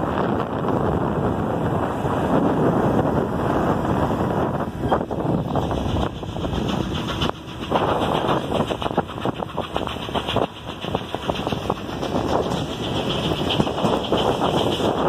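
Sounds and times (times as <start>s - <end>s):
train rolling rumble: 0.0s - 15.0s
wheels clanking over rail joints: 3.1s - 15.0s.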